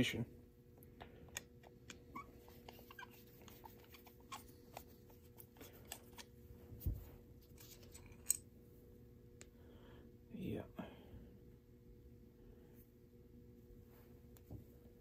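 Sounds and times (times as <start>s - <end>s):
screwdriver clicking and scraping: 1.3s - 6.3s, 7.5s - 8.4s.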